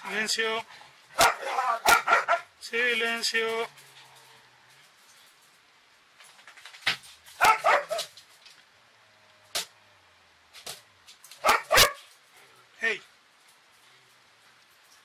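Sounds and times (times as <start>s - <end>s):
dog barking: 1.2s - 2.5s, 7.4s - 8.1s, 11.4s - 12.1s.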